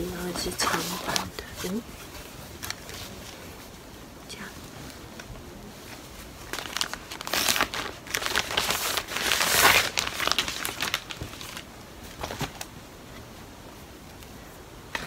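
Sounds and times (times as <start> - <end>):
plastic bags crinkling: 0.0 - 3.6, 6.0 - 12.7
cloth swishing: 0.0 - 3.9.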